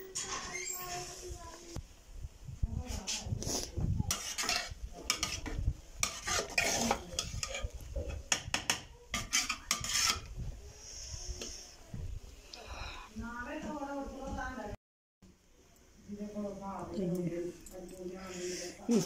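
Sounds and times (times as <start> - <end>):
ladle scraping metal pot: 4.0 - 10.4.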